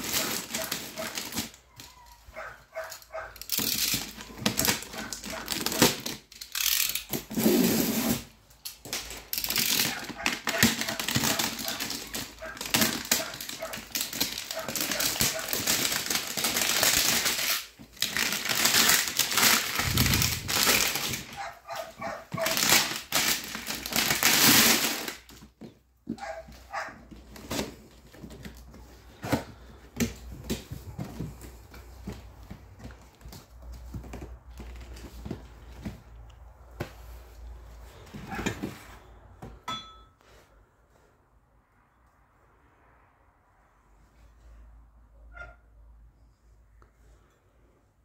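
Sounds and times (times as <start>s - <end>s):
cardboard box rustling: 0.0s - 1.6s, 9.9s - 24.2s
plastic wrapping crinkling: 0.0s - 36.2s.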